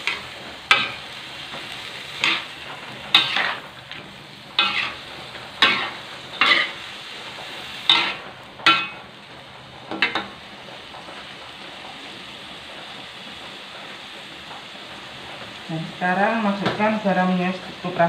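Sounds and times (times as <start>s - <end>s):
metal spatula scraping a wok: 0.0s - 9.1s
stir-fry sizzling: 0.0s - 18.0s.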